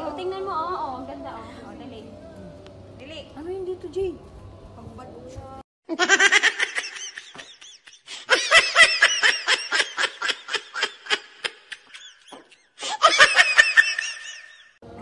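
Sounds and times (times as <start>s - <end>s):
women laughing hard: 5.9s - 14.8s.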